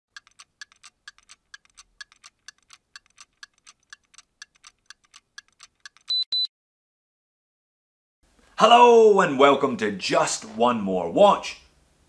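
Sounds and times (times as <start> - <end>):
clockwork ticking: 0.1 - 6.1.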